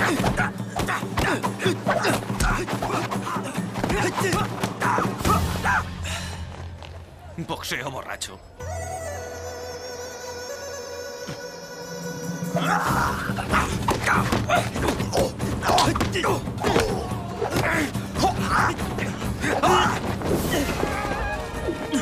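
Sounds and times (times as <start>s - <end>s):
background music: 0.0s - 22.0s
shouts and grunts: 12.5s - 22.0s.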